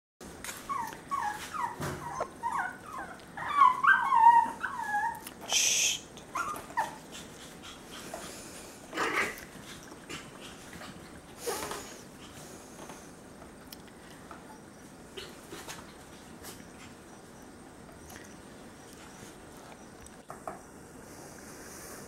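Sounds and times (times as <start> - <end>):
puppies whimpering and yipping: 0.6 - 5.2, 6.3 - 8.0
brief hissing noise: 5.4 - 6.0.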